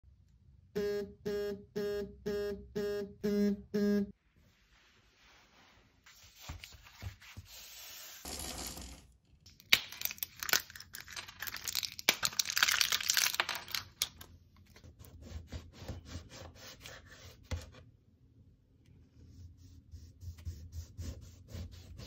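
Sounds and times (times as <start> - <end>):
blister pack foil crackling: 9.6 - 14.2.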